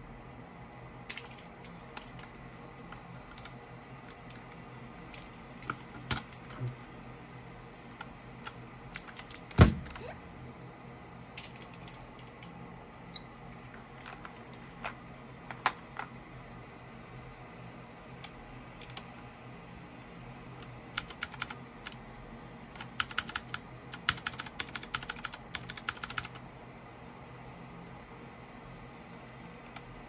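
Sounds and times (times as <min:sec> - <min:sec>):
keyboard keycaps clicking: 0:01.1 - 0:04.6, 0:05.2 - 0:06.8, 0:20.6 - 0:22.0, 0:22.8 - 0:26.4.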